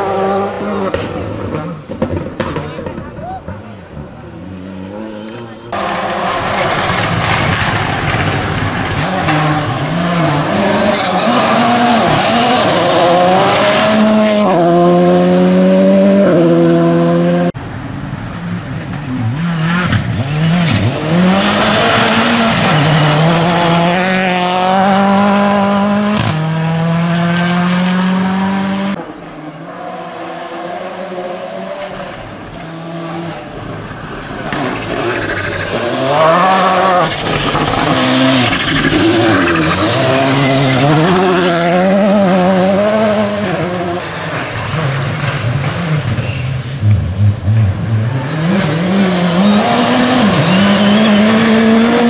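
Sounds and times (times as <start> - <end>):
rally car engine at full throttle: 0.0 - 52.0
tyres on gravel: 5.3 - 14.3.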